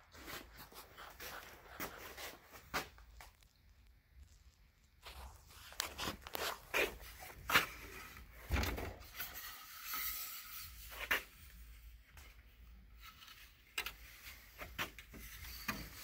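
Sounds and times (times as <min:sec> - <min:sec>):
scraping rub: 0:09.1 - 0:11.6.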